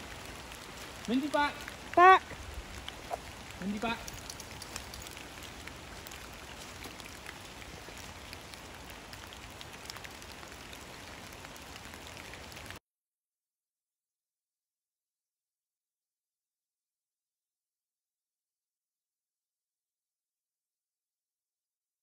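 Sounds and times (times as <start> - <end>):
steady rain pattering: 0.0 - 12.8.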